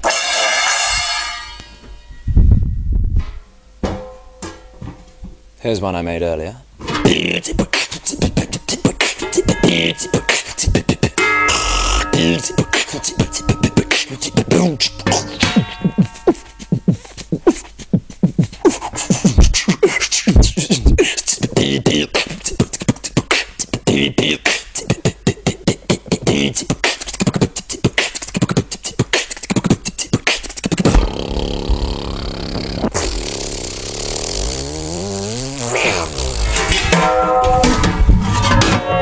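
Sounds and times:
beatboxing vocal drum hits: 0:06.9 - 0:36.9
wavering vocal synth sound: 0:07.0 - 0:23.2.

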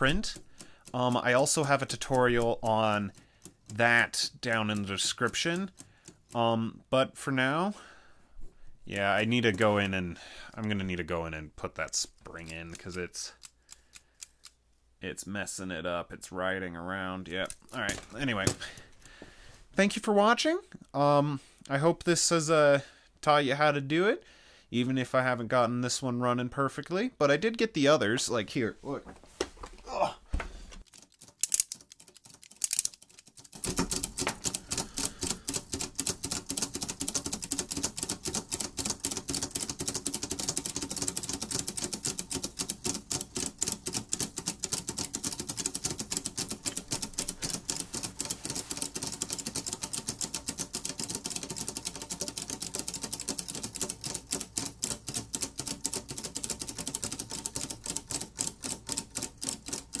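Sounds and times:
watch escapements ticking: 0:00.0 - 0:06.5, 0:11.8 - 0:14.6, 0:30.8 - 1:00.0.

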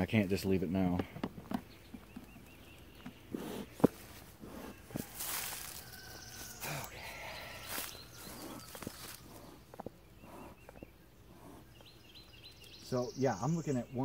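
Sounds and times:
faint chirps: 0:05.3 - 0:14.0.

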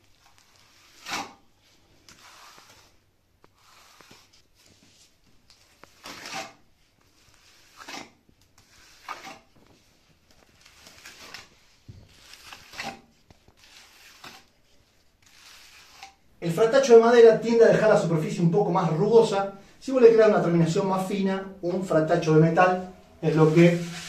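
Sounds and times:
float scraping plaster: 0:00.0 - 0:04.4, 0:05.7 - 0:16.3, 0:23.2 - 0:24.0.

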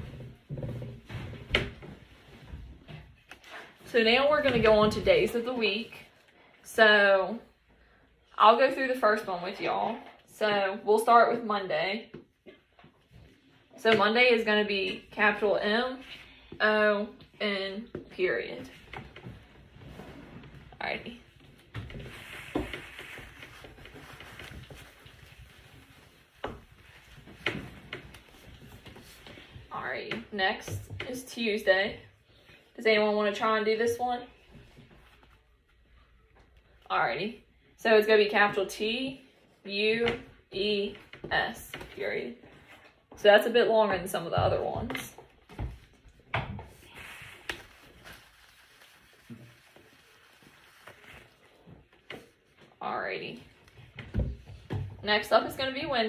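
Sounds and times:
tissue rubbing whiteboard: 0:19.7 - 0:29.2, 0:46.8 - 0:52.5.

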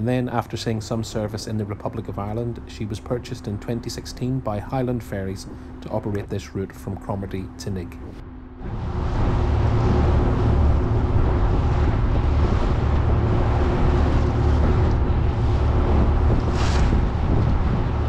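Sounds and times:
ferry engine hum: 0:00.0 - 0:18.0
heavy low rumble: 0:00.0 - 0:18.0
water washing past hull: 0:08.6 - 0:18.0
wind buffeting microphone: 0:08.6 - 0:18.0
brief loud hiss: 0:16.5 - 0:17.0.

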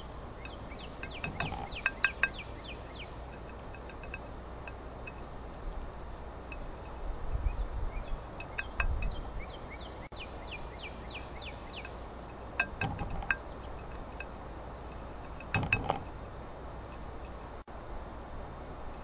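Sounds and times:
bird chirping: 0:00.0 - 0:04.1, 0:06.5 - 0:14.0
beak clicking on glass: 0:00.0 - 0:05.2, 0:08.0 - 0:09.6.

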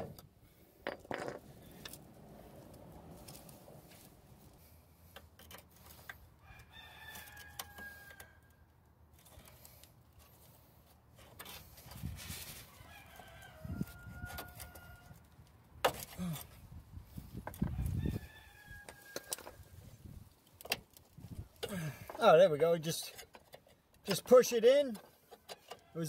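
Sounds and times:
rooster crowing: 0:06.4 - 0:08.6, 0:12.7 - 0:15.2, 0:17.6 - 0:19.6.

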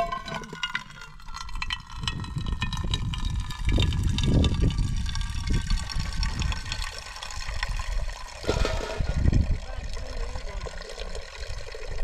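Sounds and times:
water splashing into pot: 0:00.0 - 0:12.0
low rumble: 0:08.4 - 0:10.0.

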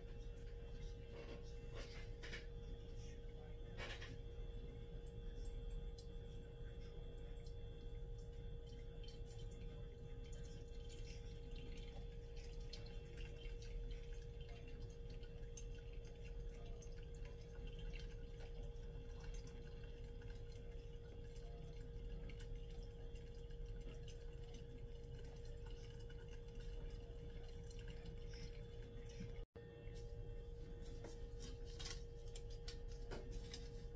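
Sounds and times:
steady hum: 0:00.0 - 0:33.9
water trickling and dripping: 0:04.5 - 0:29.5.

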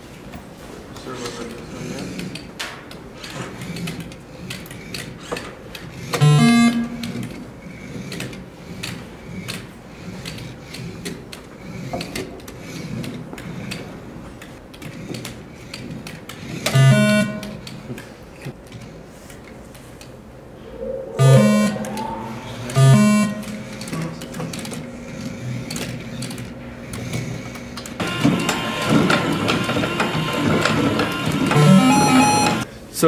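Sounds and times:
loud pitched electronic tones: 0:06.3 - 0:07.3, 0:20.6 - 0:25.7, 0:31.5 - 0:32.6.

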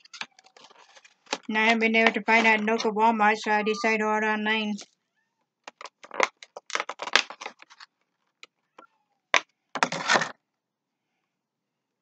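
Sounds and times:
packaging crackling: 0:00.0 - 0:02.8, 0:05.7 - 0:07.9
packaging rustling: 0:00.0 - 0:02.9, 0:05.7 - 0:08.0.

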